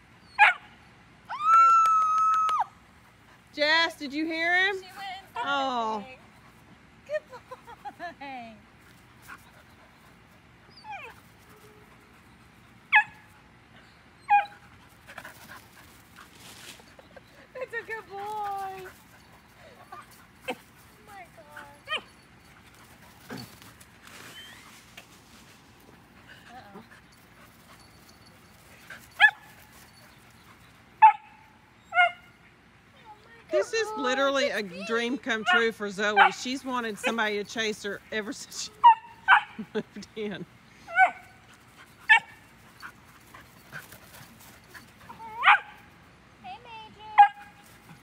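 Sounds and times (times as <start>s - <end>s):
puppy whine: 10.7s - 11.8s
dog barking: 38.8s - 39.6s, 45.4s - 45.8s.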